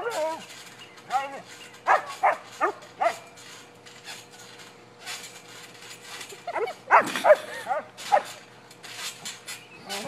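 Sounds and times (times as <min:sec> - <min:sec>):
dog yipping and whining: 0:00.0 - 0:00.5, 0:01.8 - 0:03.3.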